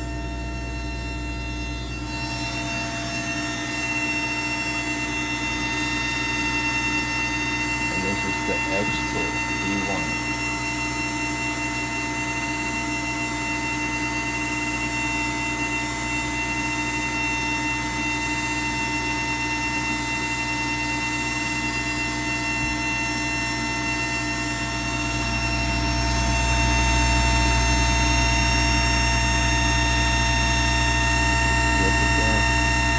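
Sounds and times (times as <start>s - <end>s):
low hum: 0.0s - 11.5s, 22.1s - 32.9s
machine fans whirring: 0.0s - 15.0s, 15.8s - 32.9s
whining tones: 0.0s - 32.9s.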